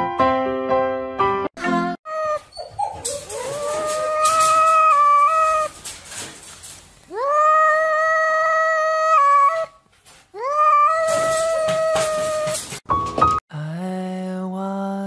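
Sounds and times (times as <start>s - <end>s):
cat meowing: 10.4s - 12.6s.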